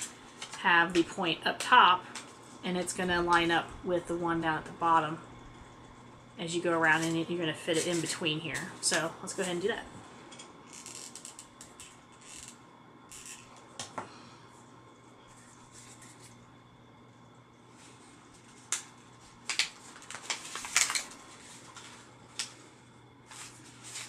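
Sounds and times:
paper cones crinkling: 6.8s - 8.2s, 18.3s - 22.6s, 23.3s - 24.0s.

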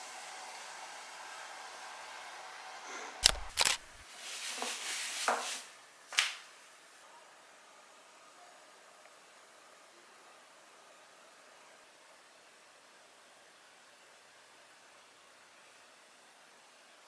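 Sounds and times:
yoga mat unrolling on floor: 4.0s - 6.4s.

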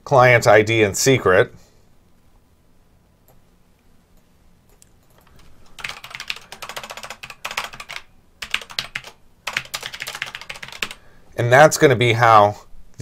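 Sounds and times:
typing on a computer keyboard: 4.8s - 11.0s.

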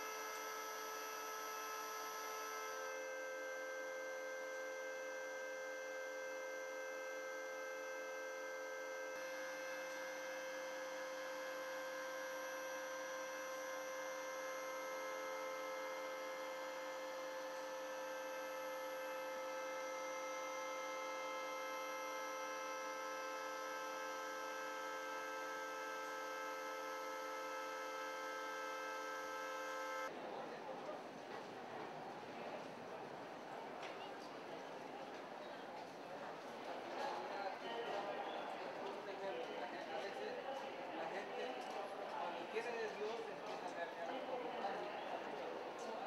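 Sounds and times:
heating machinery hum: 0.0s - 30.1s.

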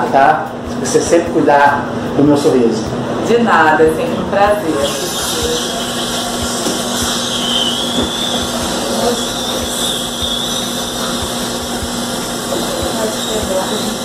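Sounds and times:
dental drill high whine: 4.1s - 14.0s.

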